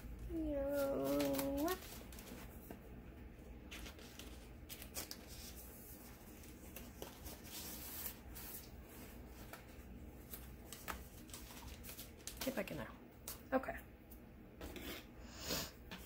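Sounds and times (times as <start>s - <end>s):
paper sheets rustling and clicking: 0.6s - 2.8s, 3.6s - 13.4s.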